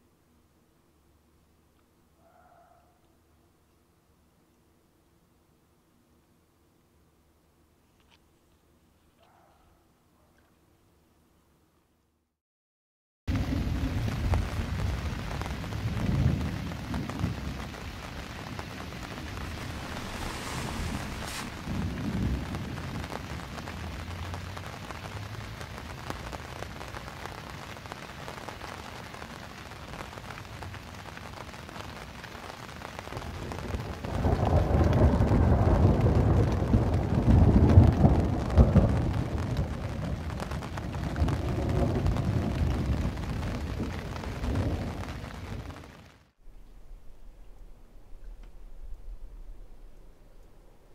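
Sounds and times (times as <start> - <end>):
thunder rumbling: 13.3 - 24.6, 33.0 - 50.9
rain on a canvas tent: 13.3 - 50.9.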